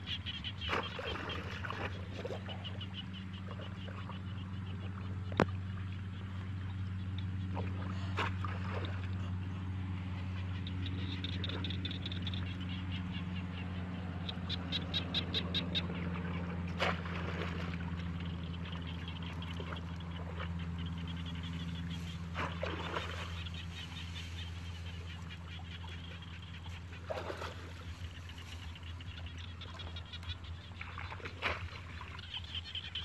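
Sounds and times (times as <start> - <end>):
steady low hum: 0.0 - 33.0
shallow water sloshing: 0.6 - 6.8, 7.4 - 9.4, 15.9 - 32.6.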